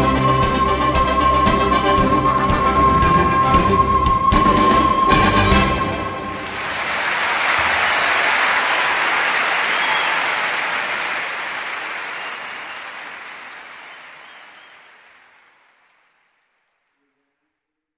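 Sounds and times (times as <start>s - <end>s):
audience applause: 6.3s - 16.4s.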